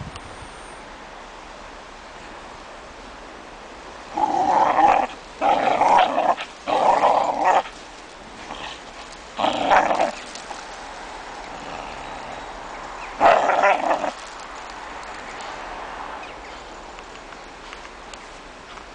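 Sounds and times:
dog growling: 4.1s - 7.7s, 9.4s - 10.3s.

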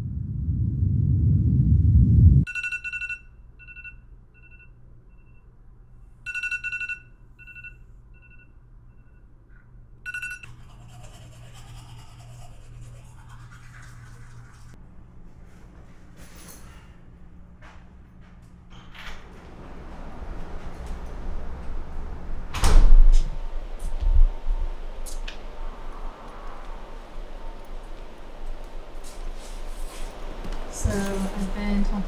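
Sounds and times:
loud low rumble: 0.0s - 2.5s, 19.5s - 28.3s
smartphone alarm beeps: 2.5s - 5.5s, 6.3s - 9.2s, 10.1s - 10.5s.

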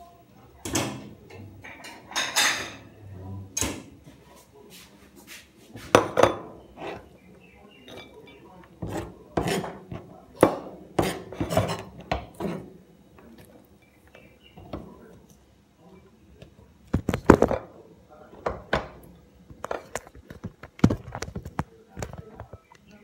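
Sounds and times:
knife and bowl clattering on board: 7.8s - 12.7s.

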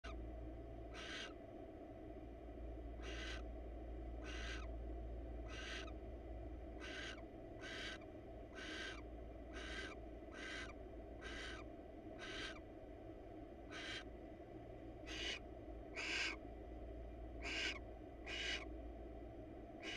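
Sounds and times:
steady low hum: 0.0s - 19.9s
owl hissing calls: 0.9s - 1.4s, 3.0s - 3.5s, 4.2s - 4.7s, 5.4s - 6.0s, 6.8s - 12.6s, 13.7s - 14.1s, 15.0s - 16.4s, 17.4s - 18.7s.

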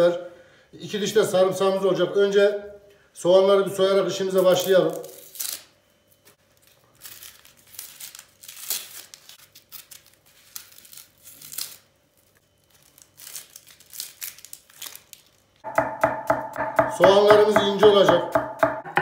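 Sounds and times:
onion skin being peeled: 4.4s - 5.8s, 6.5s - 15.6s.

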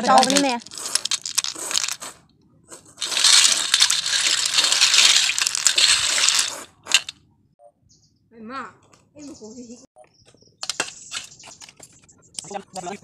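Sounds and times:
snail shells rattling in steel bowl: 0.0s - 2.2s, 3.0s - 7.2s.

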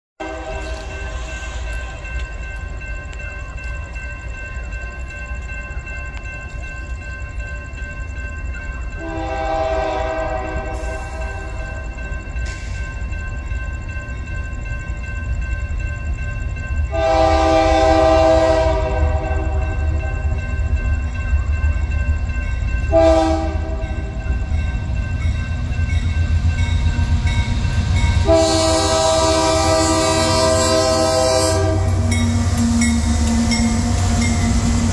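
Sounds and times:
train air horn blasts: 0.2s - 1.4s, 9.0s - 11.8s, 16.9s - 20.2s, 22.9s - 24.0s, 28.2s - 34.9s
crossing bell ringing: 0.2s - 34.9s.

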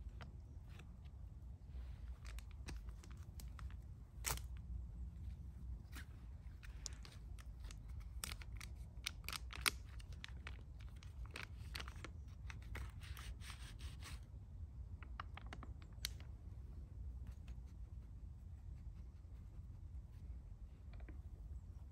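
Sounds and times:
plastic and foil wrappers crinkling: 2.0s - 4.6s, 5.9s - 13.7s.

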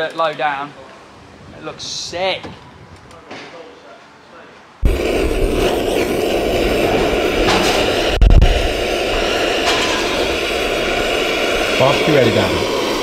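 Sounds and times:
torch lighter flame rushing: 4.8s - 13.0s
loud thump: 7.0s - 8.6s.

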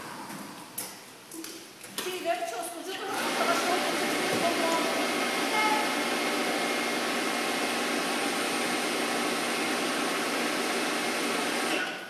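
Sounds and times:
electric crane running: 3.1s - 11.8s.

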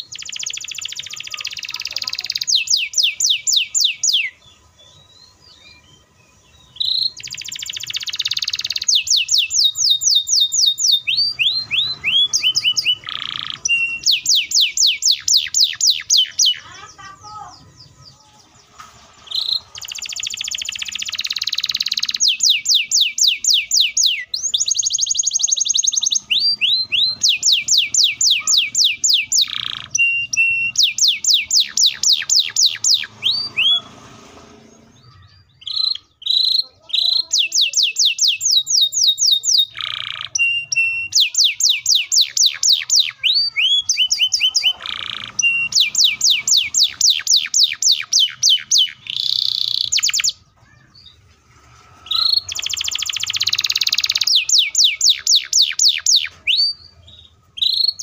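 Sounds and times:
canary singing trills: 0.0s - 58.0s.

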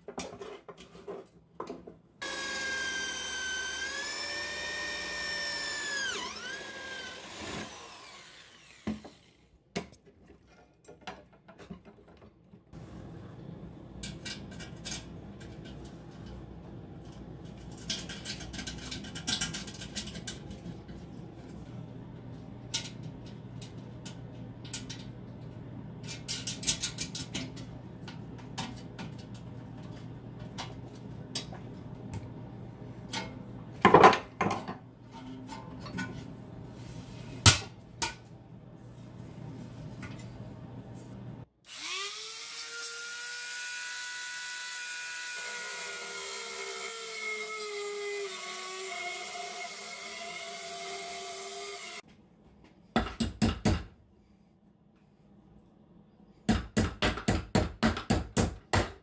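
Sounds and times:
small power tool whining: 2.2s - 9.5s, 41.7s - 52.0s.

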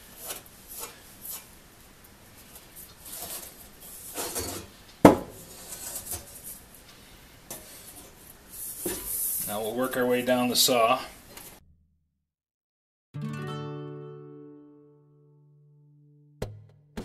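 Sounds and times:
saw knocking on workbench: 5.0s - 5.4s.

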